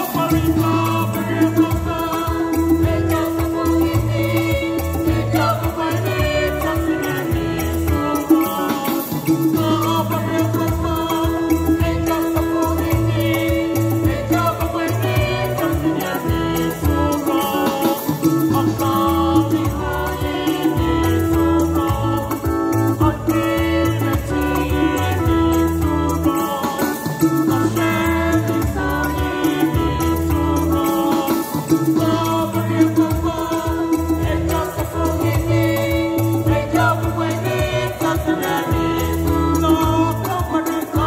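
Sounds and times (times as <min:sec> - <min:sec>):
young voices singing: 0:00.0 - 0:22.2, 0:27.7 - 0:41.0
keyboard accompaniment: 0:00.0 - 0:41.0
shaker-like percussion rhythm: 0:00.0 - 0:41.0
bass line: 0:18.3 - 0:26.3, 0:27.2 - 0:30.8.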